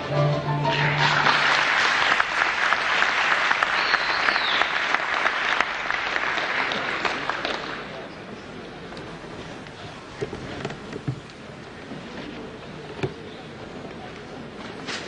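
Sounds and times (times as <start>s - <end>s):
audience applauding: 0.6s - 8.1s.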